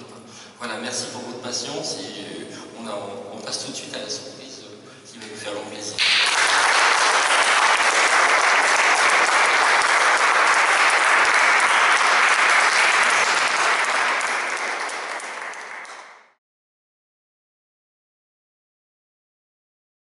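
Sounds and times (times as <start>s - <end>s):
audience applauding: 6.0s - 16.4s.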